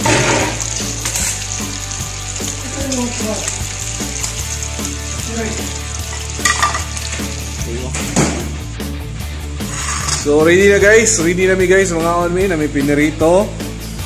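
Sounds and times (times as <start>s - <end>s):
fish sizzling in hot oil: 0.0s - 8.6s, 9.6s - 10.3s.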